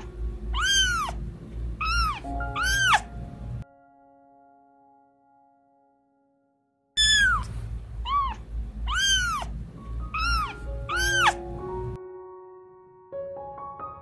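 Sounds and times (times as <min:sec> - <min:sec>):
kitten meowing: 0:00.0 - 0:01.2, 0:01.8 - 0:03.1, 0:07.0 - 0:11.4
low background rumble: 0:00.0 - 0:03.6, 0:07.0 - 0:12.0
soft piano music: 0:00.0 - 0:14.0.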